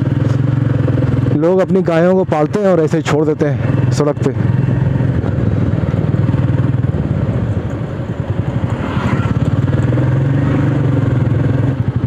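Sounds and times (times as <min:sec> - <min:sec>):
motorcycle engine low beat: 0:00.0 - 0:08.7
road and wind hiss: 0:00.0 - 0:12.0.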